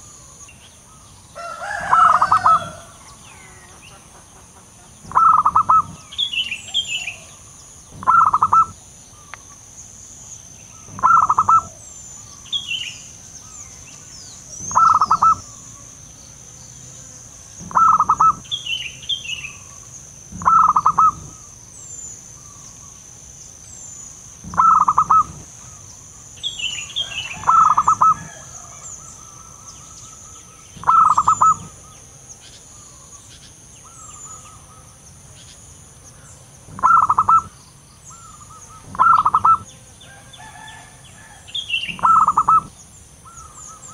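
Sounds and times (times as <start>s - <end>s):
small birds chirping: 0.0s - 43.9s
steady high-pitched whine: 0.0s - 43.9s
dove cooing: 1.4s - 3.6s, 5.1s - 7.4s, 8.0s - 9.3s, 10.8s - 11.9s, 14.5s - 15.6s, 17.6s - 18.5s, 20.3s - 21.5s, 24.4s - 25.8s, 27.0s - 29.7s, 30.8s - 31.9s, 36.7s - 37.6s, 38.2s - 39.7s, 40.6s - 43.9s.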